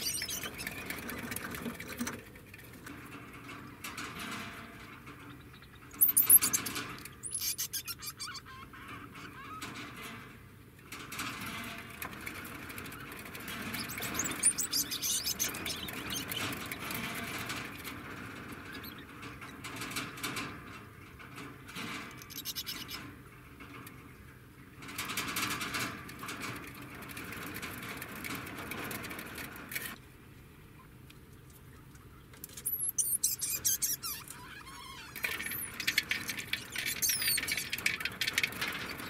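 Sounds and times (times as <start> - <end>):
rodent chirping and squeaking: 0.0 - 1.3, 5.2 - 9.9, 12.8 - 19.6, 22.1 - 23.1, 32.4 - 39.0.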